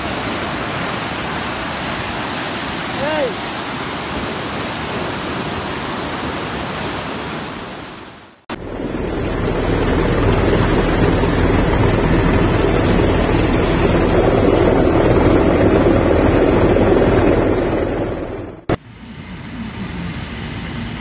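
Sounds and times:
flooded river rushing: 0:00.0 - 0:18.8.

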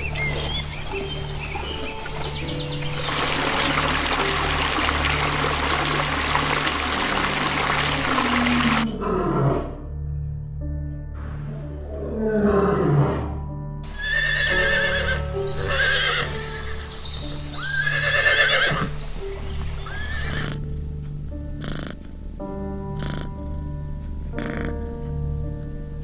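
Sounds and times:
lion roaring: 0:08.8 - 0:09.8, 0:11.7 - 0:13.4
horses whinnying: 0:13.9 - 0:16.7, 0:17.6 - 0:18.9, 0:19.8 - 0:20.6.

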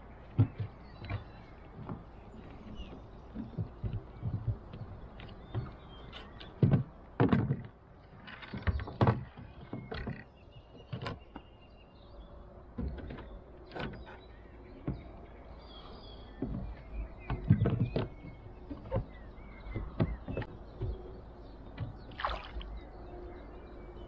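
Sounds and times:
small knocks on kayak: 0:06.4 - 0:10.2, 0:16.4 - 0:21.1
paddle splashing in water: 0:21.8 - 0:22.8.

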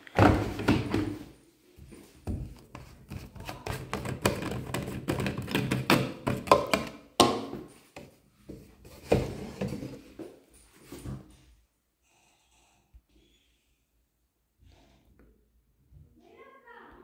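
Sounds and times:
plastic cap clicks and knocks: 0:03.6 - 0:07.6.

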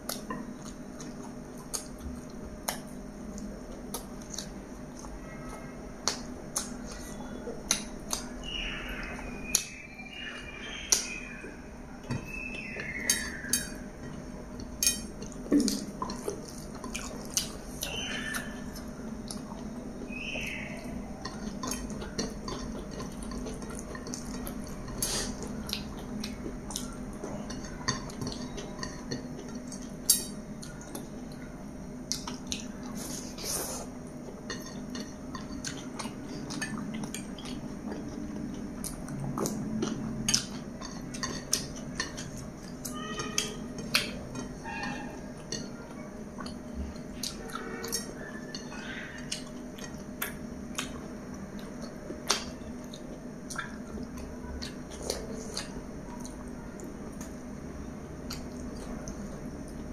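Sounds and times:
chewing and mouth clicks: 0:00.0 - 0:09.8, 0:10.8 - 0:31.4, 0:32.0 - 0:59.9
low steady hum: 0:00.0 - 0:59.9.

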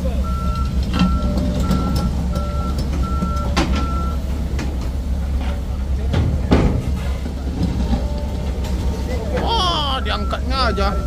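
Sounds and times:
truck reversing alarm beeps: 0:00.0 - 0:05.1, 0:07.8 - 0:11.0
truck engine running: 0:00.0 - 0:11.0.

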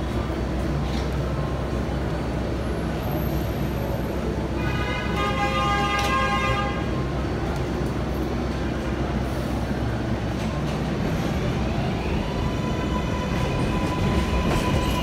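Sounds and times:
subway train rumbling: 0:00.0 - 0:15.0
train horn blast: 0:04.6 - 0:06.9.

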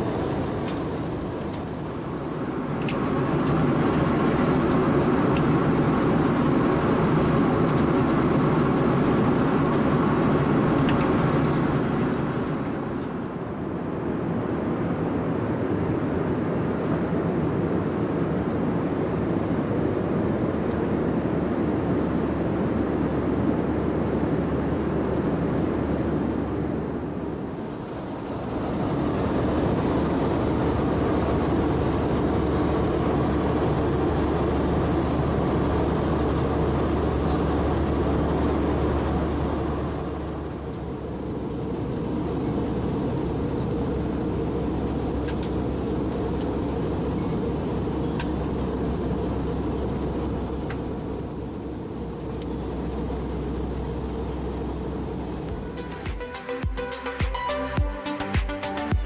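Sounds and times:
airplane cabin noise: 0:00.0 - 0:59.0.

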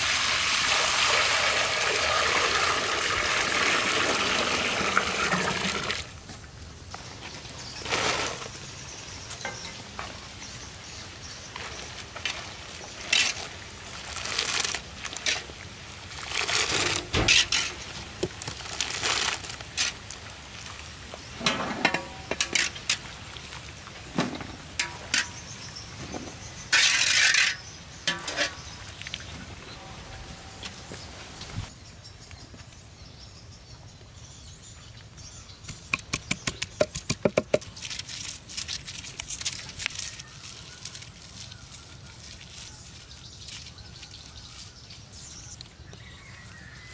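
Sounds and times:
skimmer scraping and clinking: 0:21.4 - 0:23.1, 0:24.1 - 0:28.8.

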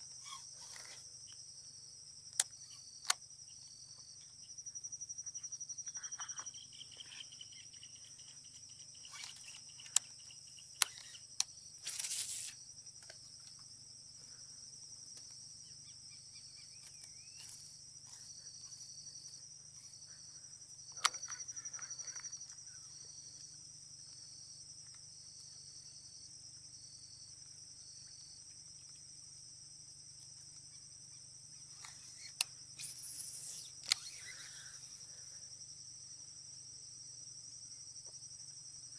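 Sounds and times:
insect pulsing: 0:00.0 - 0:38.9
insects chorus: 0:00.0 - 0:38.9
sharp clicks: 0:08.5 - 0:13.2, 0:20.9 - 0:22.6, 0:31.8 - 0:34.5.

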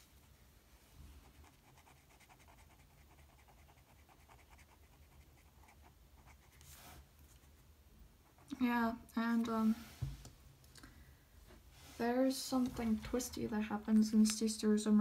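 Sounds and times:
marker scratching on paper: 0:01.3 - 0:07.6.

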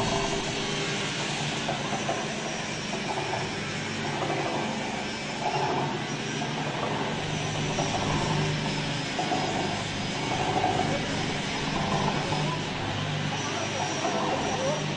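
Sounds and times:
meat mixer motor humming: 0:00.0 - 0:14.9.

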